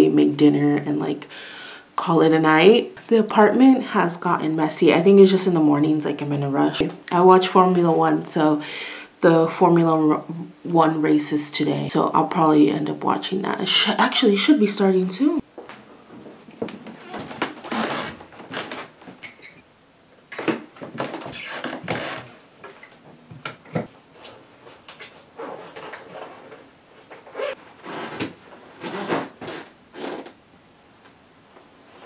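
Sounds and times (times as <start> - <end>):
objects rustling and scraping: 15.7 - 19.6, 20.4 - 30.3.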